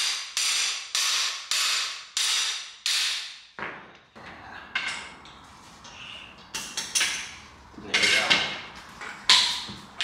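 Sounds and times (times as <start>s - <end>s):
hammer striking steel bar: 0.0s - 3.5s.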